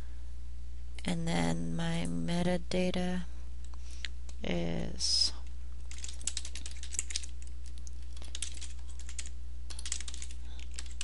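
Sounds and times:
low electrical hum: 0.0s - 11.0s
typing on computer keyboard: 5.9s - 11.0s.

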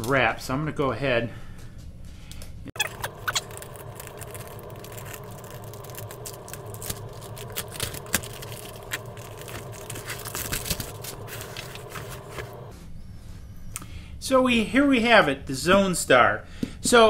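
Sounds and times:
knife slitting plastic wrap: 2.8s - 12.6s
plastic wrap crackling and tearing: 2.8s - 12.7s
steady low hum: 2.8s - 14.2s.

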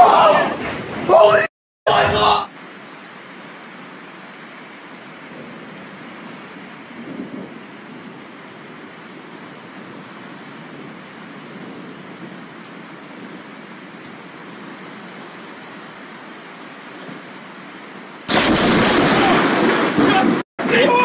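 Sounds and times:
steady rain: 1.9s - 21.0s
low rumble of thunder: 5.2s - 15.1s, 18.3s - 20.4s.

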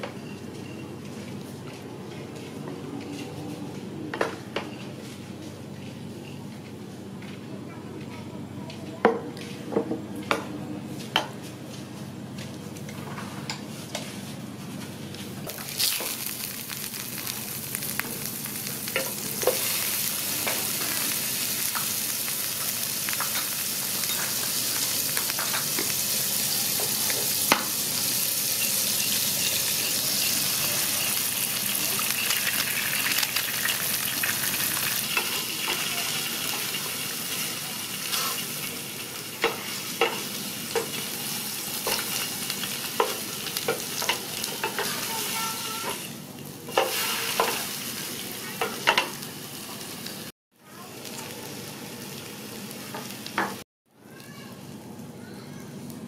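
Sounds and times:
egg sizzling in hot oil: 15.5s - 45.9s, 46.7s - 50.3s.

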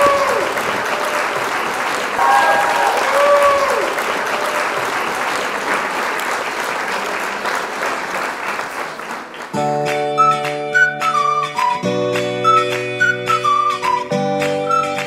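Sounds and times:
crowd applauding: 0.0s - 15.0s.

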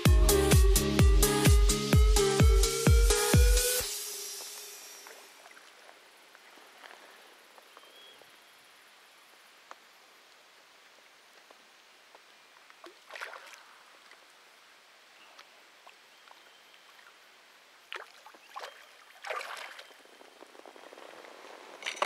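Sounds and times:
low steady hiss: 3.7s - 22.0s
water splashing and sloshing: 4.9s - 7.2s, 12.6s - 22.0s.

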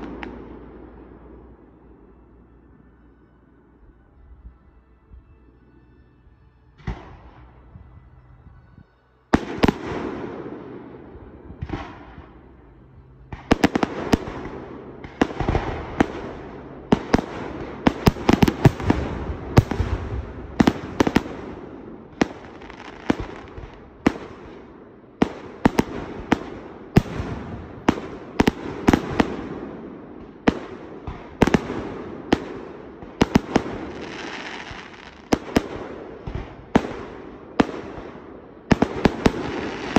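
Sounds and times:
fireworks launching and bursting: 0.0s - 2.6s, 9.3s - 39.9s
barrage of sharp firework reports: 9.3s - 39.9s.

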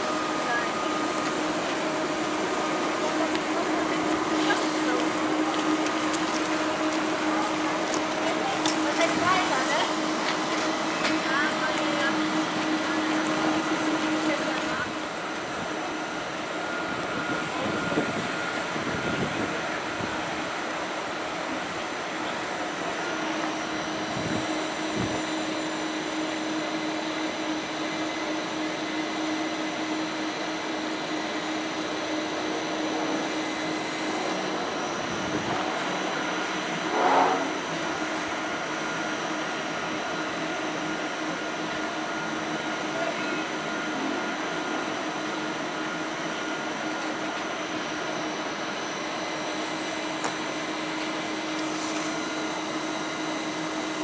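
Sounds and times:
train cooling blowers humming: 0.0s - 54.0s
steady tone: 32.6s - 38.4s.

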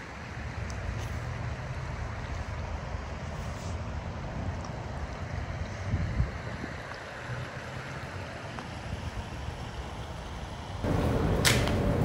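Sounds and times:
wind rumbling on microphone: 0.0s - 12.0s
sharp snap: 11.4s - 11.8s.

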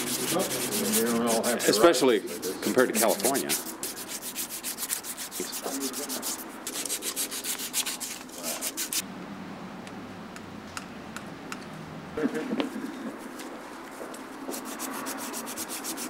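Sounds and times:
sandpaper rubbing metal shaft: 0.0s - 9.0s, 14.5s - 16.0s.

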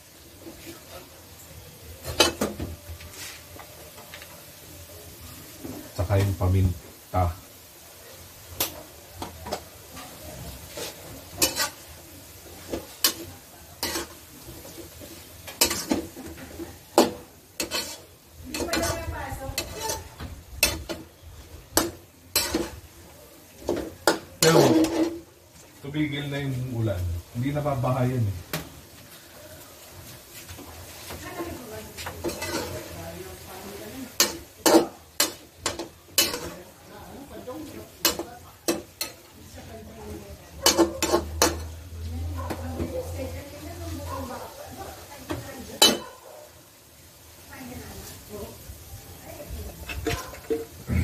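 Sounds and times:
meat sizzling: 0.0s - 51.0s
metal spatula scraping a wok: 8.6s - 26.6s, 29.8s - 39.8s, 40.6s - 41.9s.

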